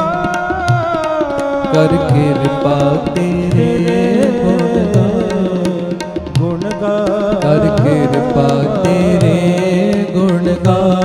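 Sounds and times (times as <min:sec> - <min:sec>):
harmonium chords: 0:00.0 - 0:11.0
person singing ornamented line: 0:00.0 - 0:11.0
tabla strokes: 0:00.0 - 0:11.0.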